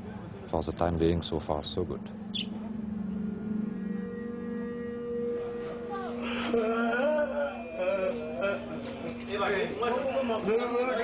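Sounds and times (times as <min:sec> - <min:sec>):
sustained music drone: 0:00.0 - 0:11.0
man singing wavering: 0:03.5 - 0:11.0.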